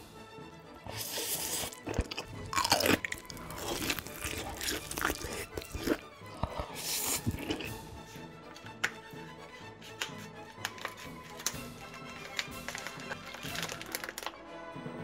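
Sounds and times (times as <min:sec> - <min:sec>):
background music: 0:00.0 - 0:15.0
person chewing crunchy food: 0:00.9 - 0:08.2.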